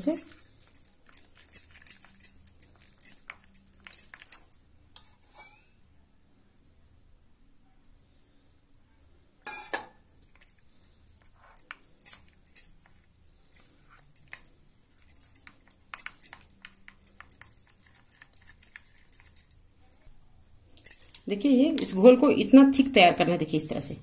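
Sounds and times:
spoon stirring batter in glass bowl: 0:00.0 - 0:05.3, 0:10.1 - 0:20.1.

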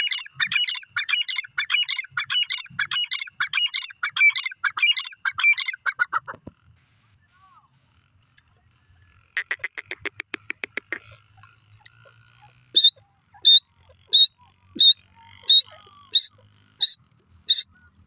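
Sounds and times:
bird high-pitched calls: 0:00.0 - 0:06.3, 0:09.4 - 0:18.0
bird clicking notes: 0:09.4 - 0:11.0.

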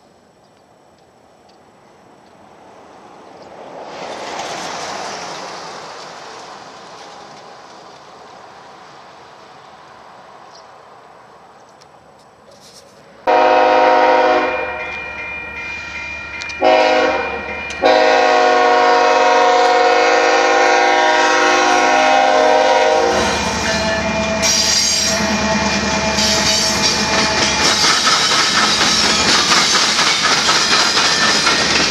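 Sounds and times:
locomotive engines rumbling: 0:00.0 - 0:31.9
train wheels on rails: 0:00.0 - 0:31.9
locomotive air horn blasts: 0:13.3 - 0:14.8, 0:16.6 - 0:26.7.

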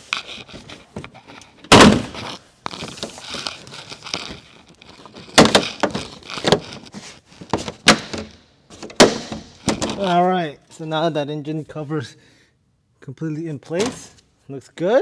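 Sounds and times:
plastic panels knocking and scraping: 0:00.4 - 0:10.2
loud thump: 0:01.7 - 0:02.2.

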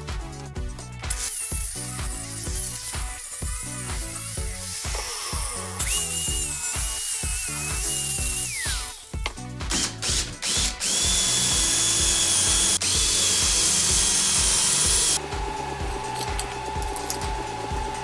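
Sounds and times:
background music with beat: 0:00.0 - 0:18.0
angle grinder spinning down: 0:01.1 - 0:09.1, 0:09.8 - 0:18.0
cordless drill drilling metal: 0:01.1 - 0:15.3.

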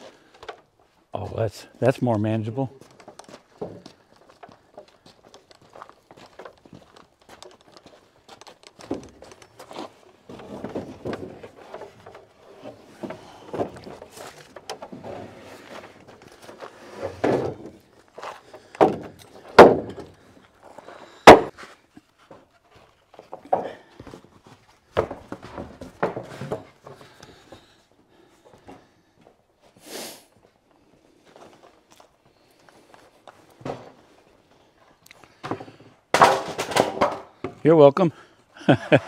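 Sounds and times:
footsteps: 0:00.8 - 0:35.9
lumber rattling and knocking: 0:02.8 - 0:21.6, 0:22.2 - 0:27.7, 0:35.3 - 0:37.7
sharp wooden knocks: 0:18.5 - 0:20.2, 0:21.2 - 0:21.5, 0:24.9 - 0:27.1, 0:35.4 - 0:37.6.

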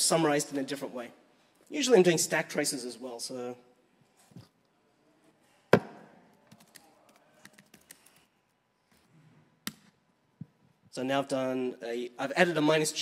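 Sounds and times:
laptop keyboard typing: 0:06.5 - 0:08.3.

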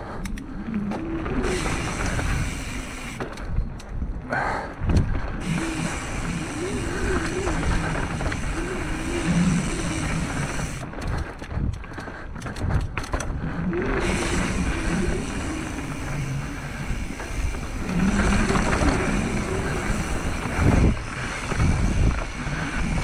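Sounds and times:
bike rattling: 0:00.0 - 0:23.0
wind rushing over microphone: 0:04.8 - 0:23.0
tyres rumbling over ground: 0:04.9 - 0:11.7, 0:12.6 - 0:23.0.

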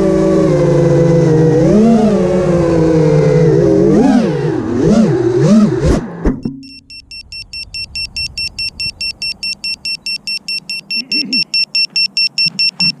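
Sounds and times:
rapid high-pitched beeping: 0:06.6 - 0:13.0.

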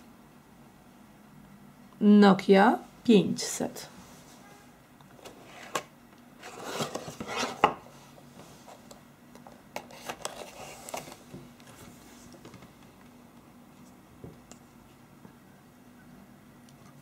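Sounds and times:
cardboard lid rustling and scraping: 0:06.4 - 0:07.8.

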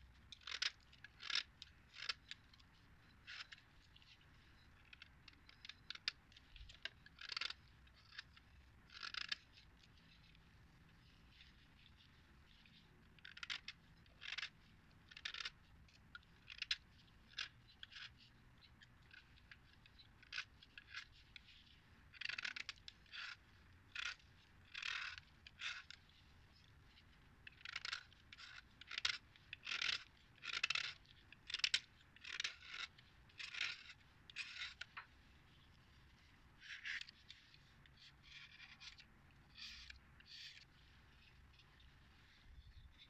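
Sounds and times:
knife blade scraping chalk: 0:06.6 - 0:10.4, 0:22.2 - 0:26.0, 0:27.6 - 0:34.9, 0:36.6 - 0:43.0.

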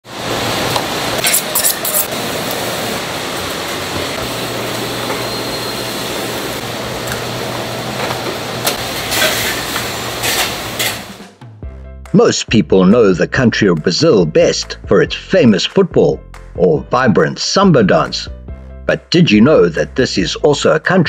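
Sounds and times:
ventilation hum: 0:00.0 - 0:11.4.

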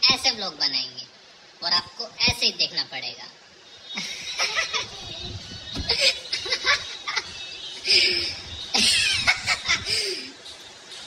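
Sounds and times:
people speaking: 0:00.0 - 0:03.4, 0:04.0 - 0:11.0
people laughing: 0:04.0 - 0:10.4.

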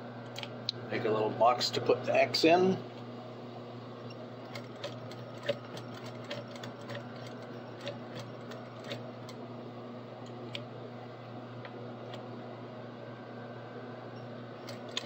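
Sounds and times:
sewing machine motor hum: 0:03.8 - 0:12.8, 0:13.8 - 0:15.0.

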